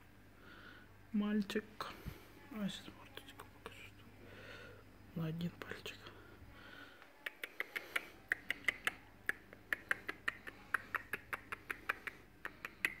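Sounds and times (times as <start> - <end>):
lip kissing clicks: 7.2 - 13.0.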